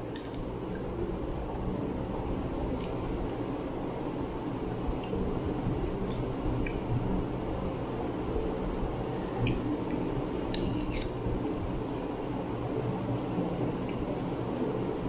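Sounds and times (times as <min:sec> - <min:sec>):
electric fan humming: 0:00.0 - 0:15.0
spoons clinking on glass bowls: 0:10.5 - 0:11.2.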